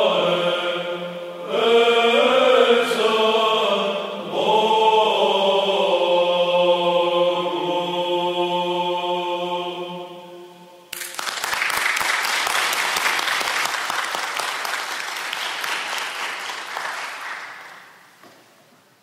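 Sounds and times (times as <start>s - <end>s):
men's choir chord: 0.0s - 10.9s
audience applause: 11.0s - 18.0s.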